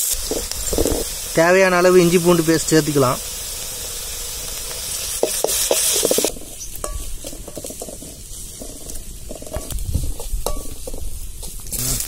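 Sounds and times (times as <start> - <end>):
onions sizzling in hot oil: 0.0 - 12.0
spoon stirring in pan: 5.2 - 11.8.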